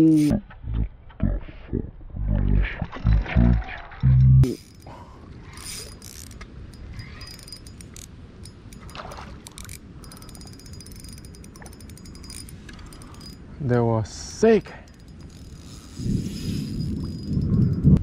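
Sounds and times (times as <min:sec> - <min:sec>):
low rumble of wind: 0:00.2 - 0:18.0
fishing reel clicking: 0:04.4 - 0:13.4, 0:14.6 - 0:17.9.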